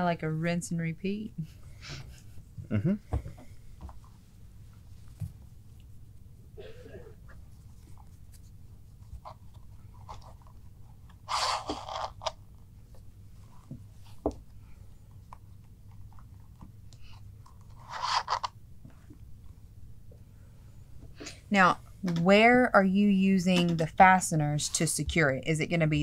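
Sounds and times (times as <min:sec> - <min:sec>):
leather straps rubbing: 0:07.7 - 0:12.3, 0:17.1 - 0:18.5.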